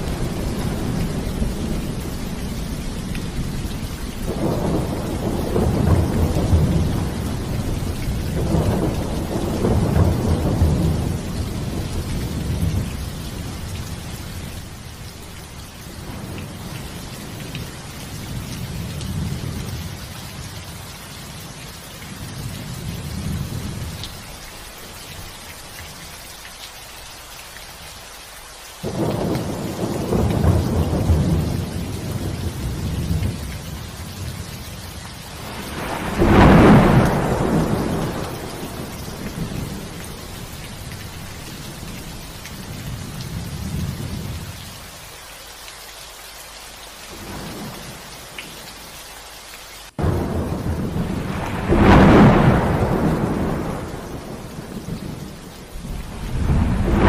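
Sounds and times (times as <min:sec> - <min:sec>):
rolling thunder: 0:00.0 - 0:15.4, 0:28.8 - 0:44.5, 0:50.0 - 0:57.0
steady rain: 0:00.0 - 0:57.0.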